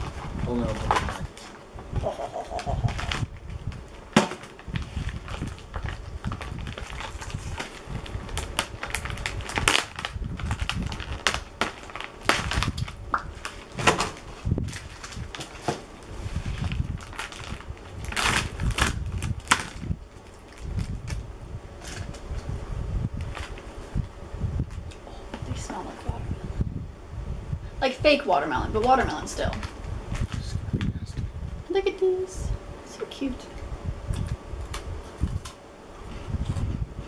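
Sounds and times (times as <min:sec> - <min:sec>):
plastic packaging crackling: 0:00.0 - 0:22.6, 0:23.2 - 0:25.0.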